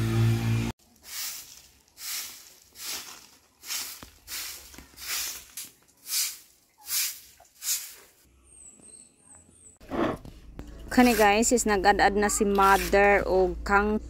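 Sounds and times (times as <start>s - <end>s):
broom sweeping dirt: 0.8s - 8.3s, 10.9s - 11.5s, 12.4s - 13.2s.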